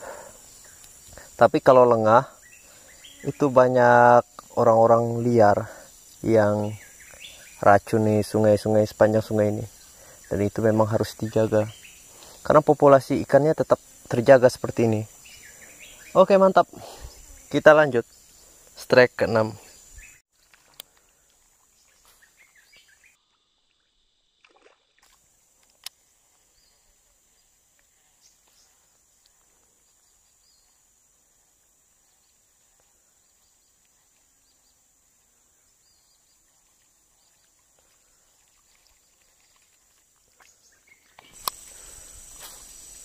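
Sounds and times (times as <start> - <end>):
faint high hiss: 0.0 - 24.3, 25.1 - 43.0
sharp click: 41.2 - 41.7.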